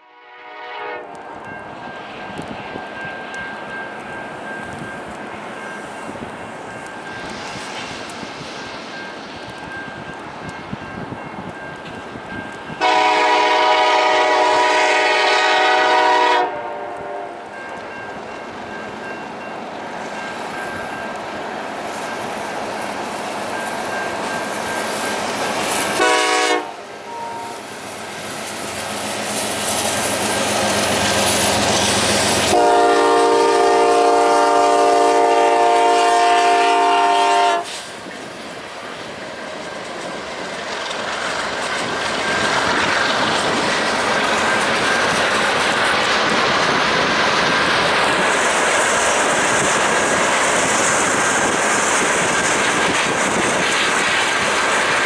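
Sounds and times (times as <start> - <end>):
locomotive air horn blasts: 0.0 - 1.2, 12.8 - 17.4, 25.9 - 27.6, 32.5 - 37.8
diesel locomotive engines rumbling: 0.0 - 55.0
wheels clacking on rail joints: 37.9 - 55.0.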